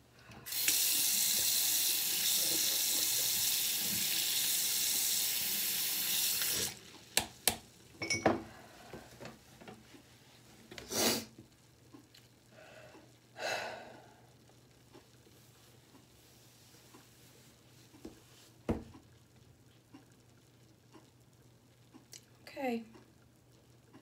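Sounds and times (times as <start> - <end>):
sink tap running: 0.4 - 8.2.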